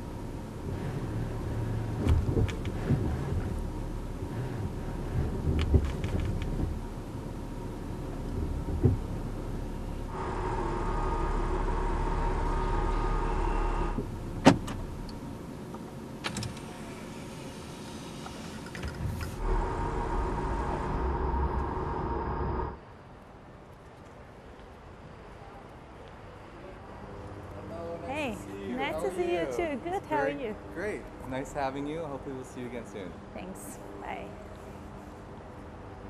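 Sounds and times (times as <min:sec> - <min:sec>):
car low hum: 0:00.0 - 0:22.9
electric whirring: 0:18.2 - 0:22.8.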